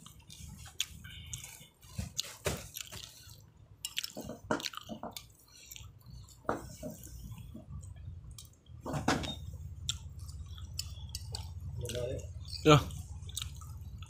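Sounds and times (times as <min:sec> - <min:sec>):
wet chewing sounds: 0:00.0 - 0:14.0
steady low hum: 0:05.3 - 0:14.0.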